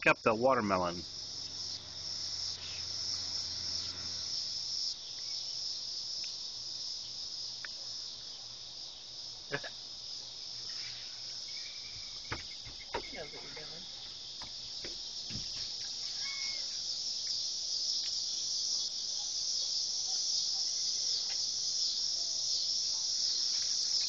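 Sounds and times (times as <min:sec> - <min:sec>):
crickets chirring: 0:00.0 - 0:24.0.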